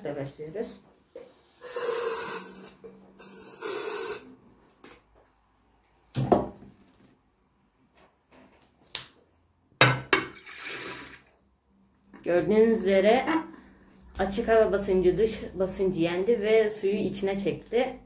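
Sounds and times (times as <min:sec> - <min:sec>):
aerosol spray hissing: 0:01.6 - 0:04.2.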